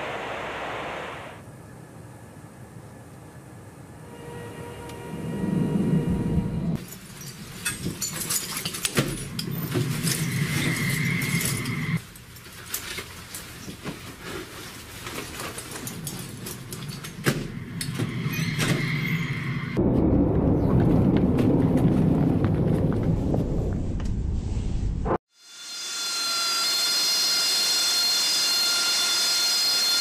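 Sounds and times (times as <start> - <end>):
gear clattering and jangling: 6.8 - 18.6
loud low rumble: 19.7 - 25.2
hurried footsteps: 20.8 - 24.0.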